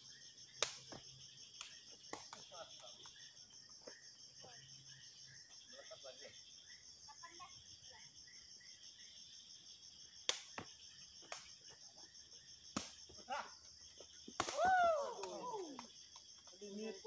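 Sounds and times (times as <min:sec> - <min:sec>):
insects chirring: 0:00.0 - 0:17.0
ball kicked with sharp smacks: 0:12.7 - 0:13.2.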